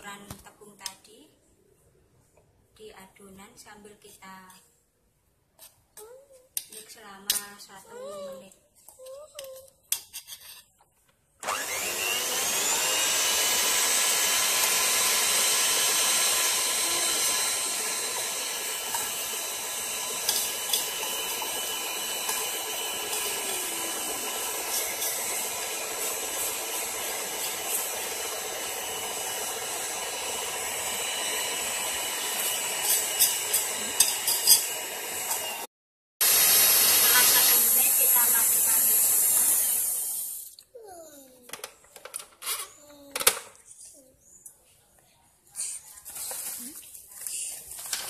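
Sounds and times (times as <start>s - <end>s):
stand mixer motor running: 11.4s - 35.6s, 36.2s - 40.4s.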